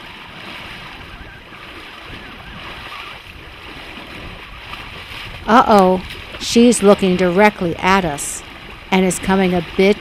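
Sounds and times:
water rushing: 0.0 - 10.0
wind: 0.0 - 10.0.

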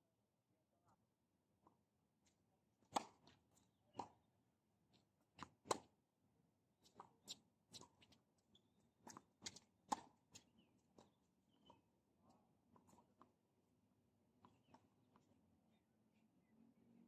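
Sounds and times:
tennis ball bouncing: 2.8 - 4.2, 5.4 - 5.9, 9.0 - 11.8
rackets striking tennis ball: 2.9 - 4.2, 9.4 - 10.5.

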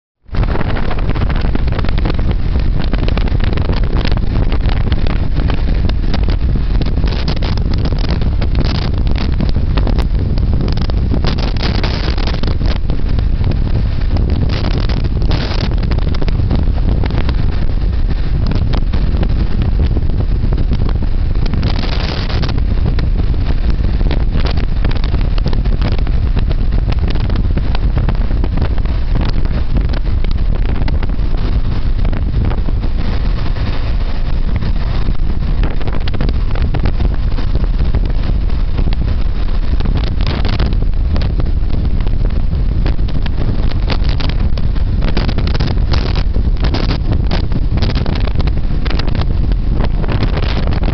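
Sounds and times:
wind noise on microphone: 0.0 - 50.9
road noise: 0.2 - 50.9.

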